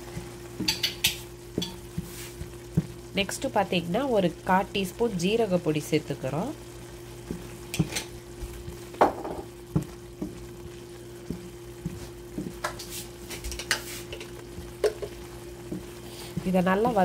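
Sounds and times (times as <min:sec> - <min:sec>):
soft frying sizzle: 0:00.0 - 0:17.0
spatula scraping and knocking pan: 0:07.2 - 0:17.0.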